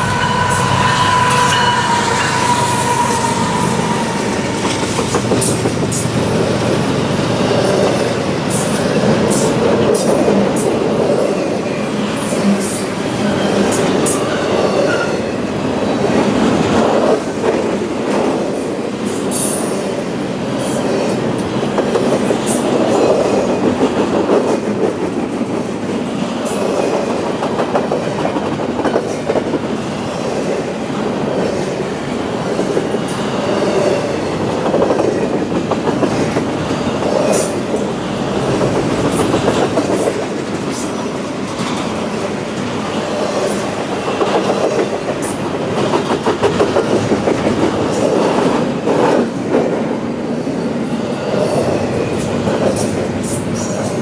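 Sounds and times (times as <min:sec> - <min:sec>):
high wheel squeals: 0:00.0 - 0:04.8
train wheels rumbling on rails: 0:00.0 - 0:54.0.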